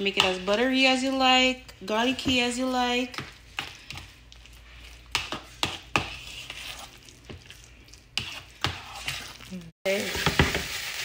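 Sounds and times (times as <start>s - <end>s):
utensil stirring mashed potatoes: 1.9s - 9.6s.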